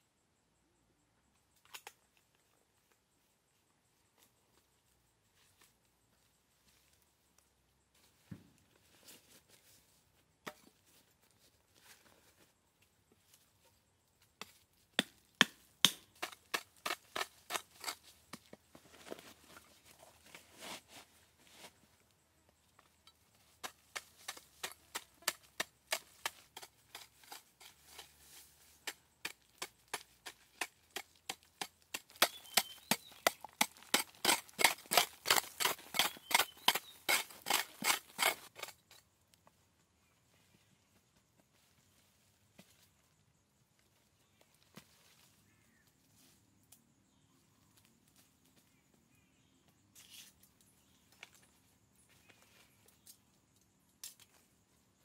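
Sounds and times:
blade chopping wood: 15.0 - 18.4, 28.9 - 38.7.

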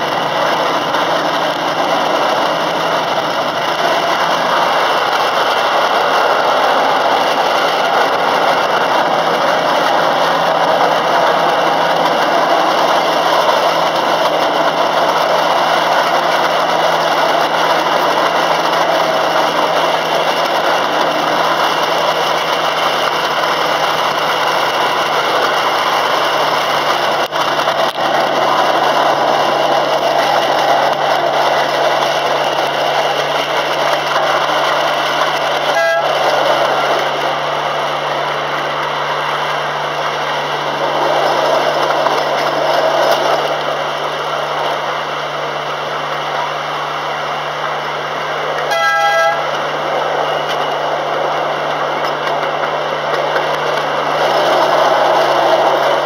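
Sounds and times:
miniature train engine running: 0.0 - 56.0
train running noise: 0.0 - 56.0.

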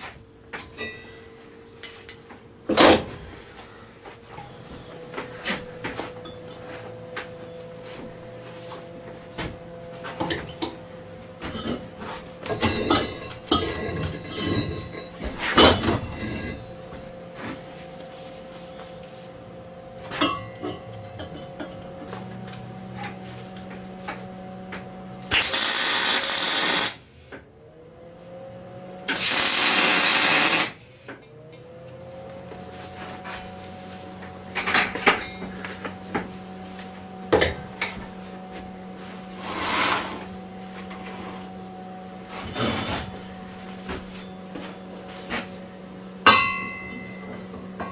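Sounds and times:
steady hum: 0.0 - 31.2
arc welding crackling hiss: 25.3 - 27.0, 29.1 - 30.8
steel clanks and knocks: 46.3 - 47.9.

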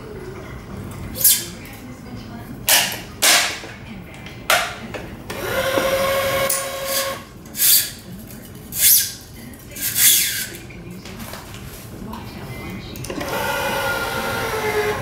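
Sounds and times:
tensioner motor whine: 13.1 - 15.0.

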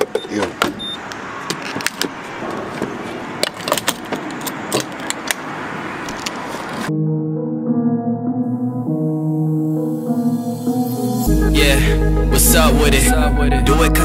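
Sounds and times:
short high pump beep: 0.2 - 1.0.

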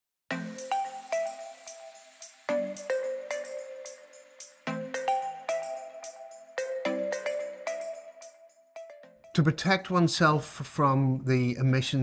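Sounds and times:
bright ringing struck notes music: 0.3 - 9.3.

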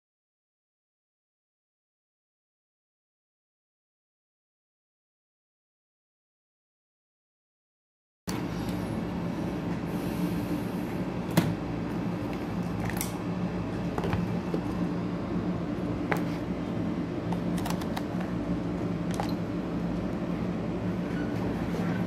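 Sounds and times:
low machine hum: 8.3 - 22.0.

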